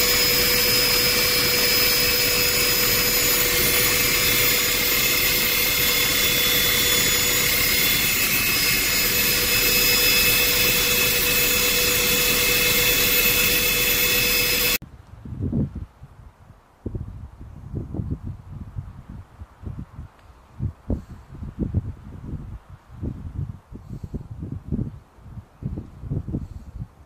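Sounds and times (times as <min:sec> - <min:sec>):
helicopter turbine and rotor rush: 0:00.0 - 0:14.8
high whines: 0:00.0 - 0:14.8.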